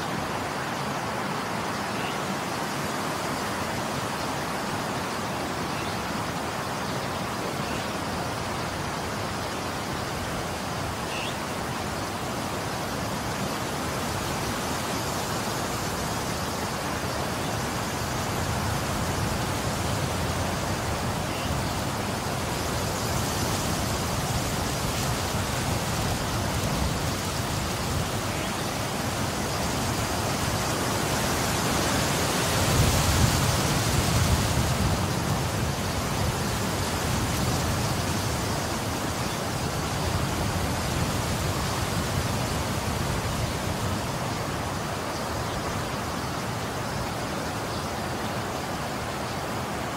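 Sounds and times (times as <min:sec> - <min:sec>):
wind buffeting microphone: 0:17.6 - 0:44.7.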